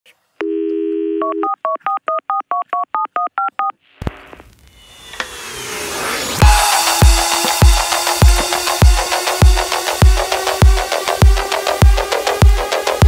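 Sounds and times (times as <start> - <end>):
touch-tone keypad beeps: 0.8 - 3.7
electronic music: 6.1 - 13.0.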